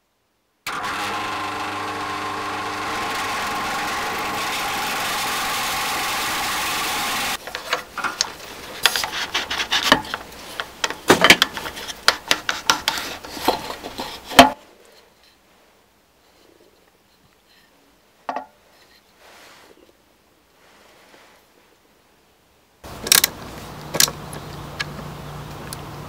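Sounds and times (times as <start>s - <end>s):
electric drill boring wood: 0.7s - 7.4s.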